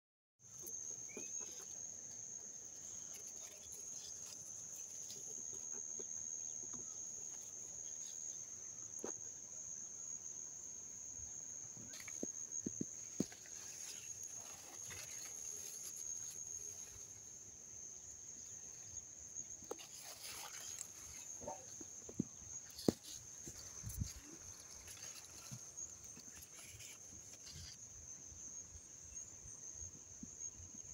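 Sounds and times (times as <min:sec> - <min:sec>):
high-pitched insect trill: 0:00.4 - 0:30.9
leaves rustling: 0:02.7 - 0:05.8, 0:11.8 - 0:17.5, 0:18.4 - 0:27.9.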